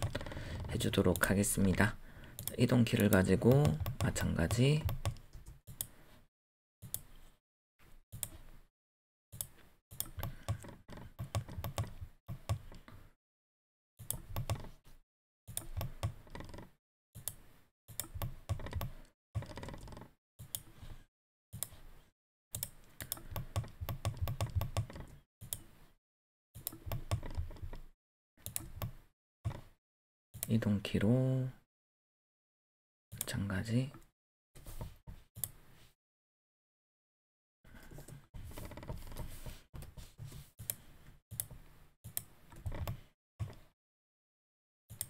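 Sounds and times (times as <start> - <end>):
keyboard and mouse clicking: 0.0 - 1.8, 2.4 - 5.9, 9.4 - 13.0, 14.0 - 14.7, 15.5 - 20.7, 22.6 - 25.7, 26.6 - 29.6.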